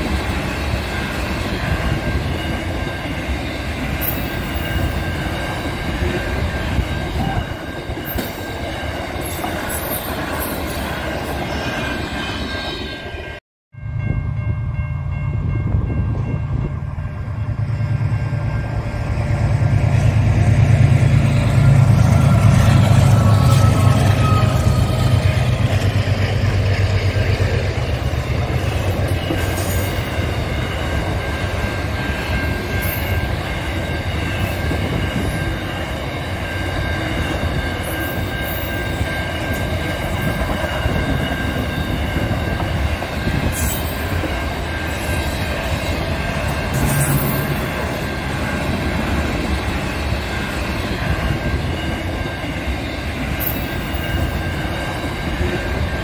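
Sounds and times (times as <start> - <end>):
train wheels rumbling on rail: 0.0 - 13.2, 14.0 - 56.0
locomotive engine drone: 13.8 - 56.0.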